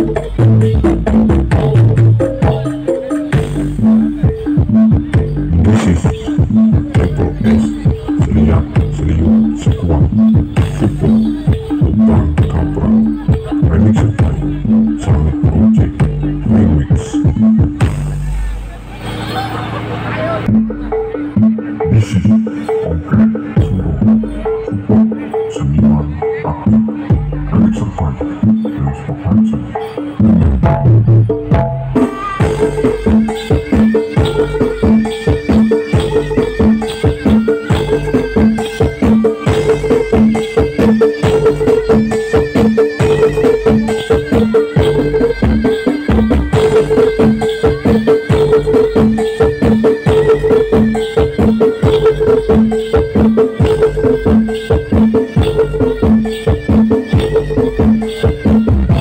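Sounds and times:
traditional percussion music: 0.0 - 59.0
drum strokes: 29.4 - 59.0.

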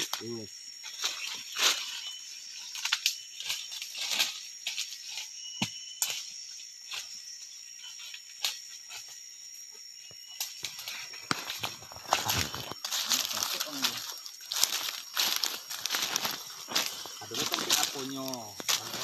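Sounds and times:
forest insects droning: 0.0 - 19.0
twigs snapping: 10.4 - 19.0
footsteps crunching through leaves: 10.6 - 19.0.

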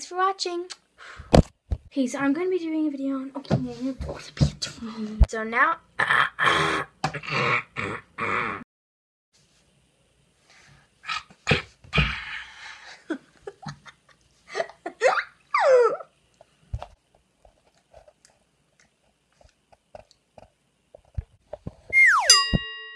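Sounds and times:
girl laughing: 12.9 - 16.1
girl squealing: 15.0 - 16.1, 21.9 - 22.4.

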